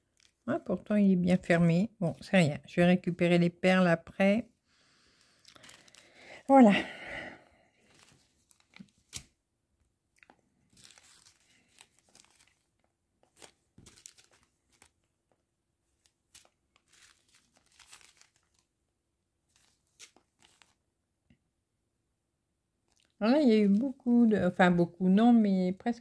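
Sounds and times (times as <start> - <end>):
plastic bags crinkling and ticking: 0.0 - 0.5, 5.3 - 6.3, 10.2 - 15.4, 16.0 - 18.7.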